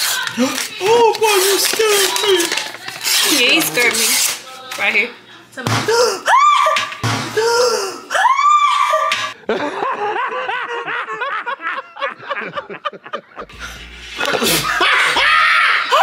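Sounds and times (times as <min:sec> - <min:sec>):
man laughing hysterically: 0:09.4 - 0:13.5, 0:14.2 - 0:16.0.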